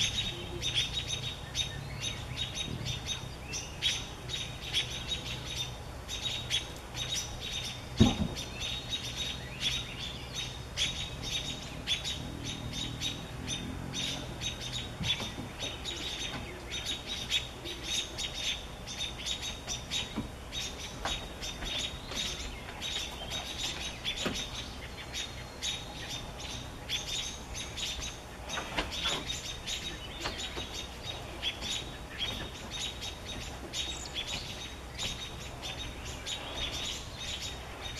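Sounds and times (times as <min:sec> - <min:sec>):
robins alarm chirps: 0:00.0 - 0:37.9
thump: 0:08.0 - 0:08.4.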